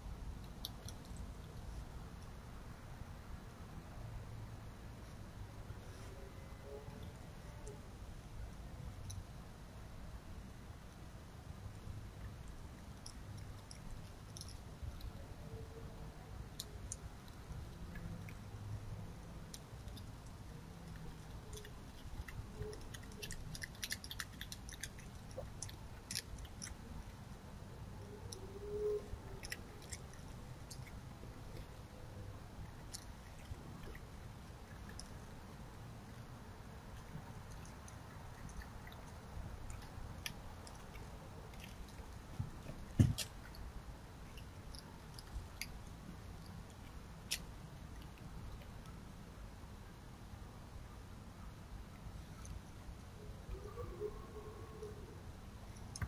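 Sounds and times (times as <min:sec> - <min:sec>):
fox chewing food: 0:11.7 - 0:15.5, 0:16.3 - 0:49.0.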